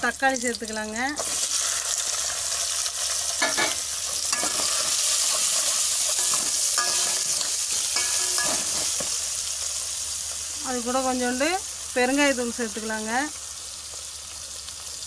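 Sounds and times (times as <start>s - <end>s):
tomatoes sizzling in oil: 0.0s - 15.0s
metal ladle scraping a pot: 3.4s - 9.1s.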